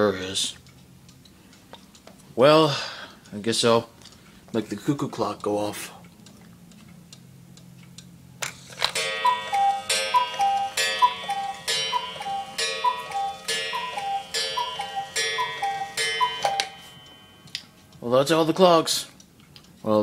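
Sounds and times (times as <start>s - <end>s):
clock mechanism click: 7.6s - 18.5s
ringing strike: 9.0s - 17.6s
cuckoo clock call: 9.0s - 17.7s.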